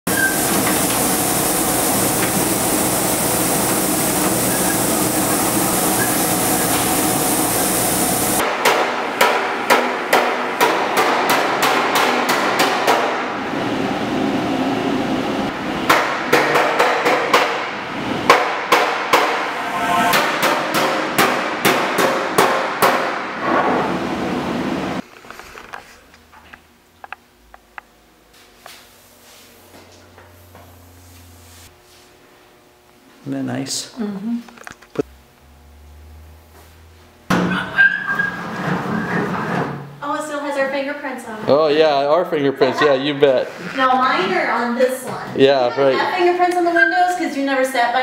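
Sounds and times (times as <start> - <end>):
hammer striking sheet metal: 8.4 - 13.3, 15.8 - 23.4
loud rushing noise: 17.6 - 21.7.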